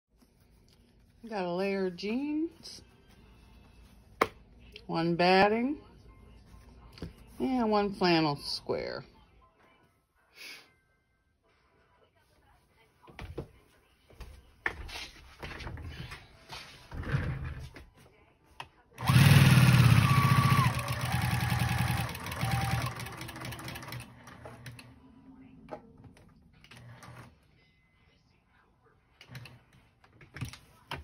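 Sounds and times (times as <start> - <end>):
electric sewing machine stitching: 19.0 - 24.8.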